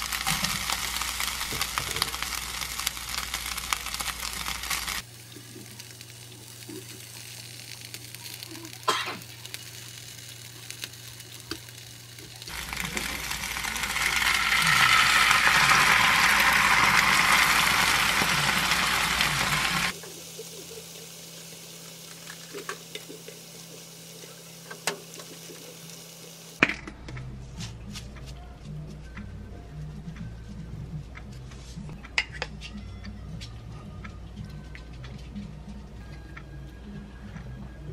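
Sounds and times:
food frying in pan: 0.0 - 26.6
loud sizzle of sauce: 0.0 - 26.6.

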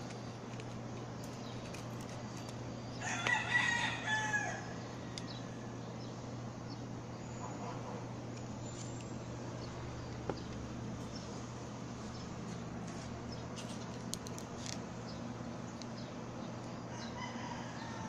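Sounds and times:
steady low hum: 0.0 - 18.0
rooster crowing: 3.0 - 5.9, 16.9 - 18.0.

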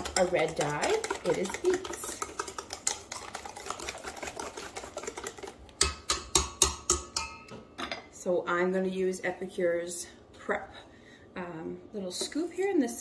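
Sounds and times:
whisk beating batter in metal bowl: 0.0 - 7.4.

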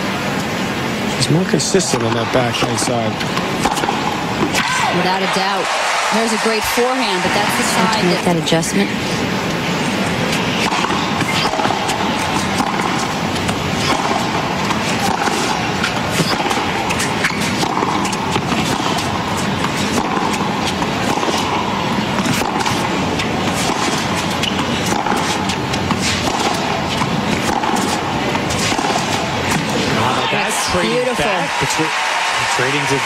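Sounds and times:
crowd noise hiss: 0.0 - 33.0
racket hitting tennis ball: 1.9 - 6.0, 10.2 - 30.3.

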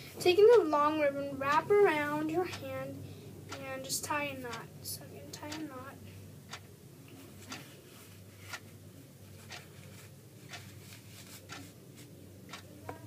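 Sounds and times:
low steady hum: 0.0 - 13.0
clock ticking: 2.5 - 2.8, 3.5 - 4.7, 5.3 - 5.8, 6.5 - 6.7, 9.4 - 9.7, 10.5 - 10.7, 11.5 - 11.7, 12.4 - 13.0
ribbon being handled: 9.3 - 12.1.

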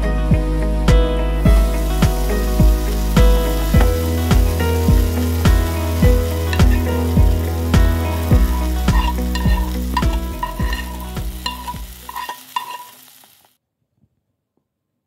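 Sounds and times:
background music with beat: 0.0 - 12.1
food sizzling in frying pan: 1.6 - 13.6.

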